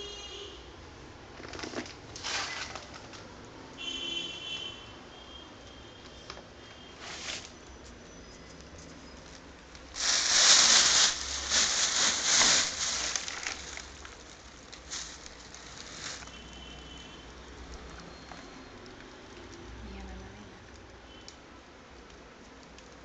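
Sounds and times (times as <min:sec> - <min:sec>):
plastic bag rustling: 0:01.4 - 0:03.3, 0:06.9 - 0:08.0, 0:08.7 - 0:17.0.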